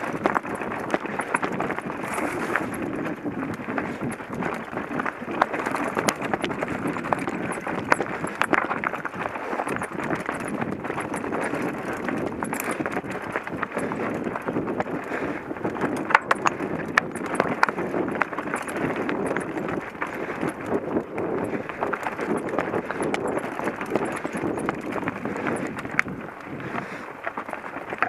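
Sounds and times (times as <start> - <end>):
bike rattling: 0.0 - 28.0
bike tyres crunching on rock: 0.0 - 28.0
sharp clicks and knocks: 15.7 - 20.7.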